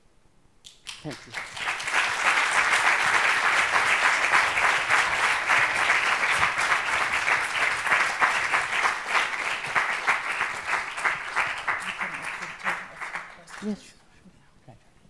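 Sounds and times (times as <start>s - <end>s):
audience applauding: 0.7s - 13.8s.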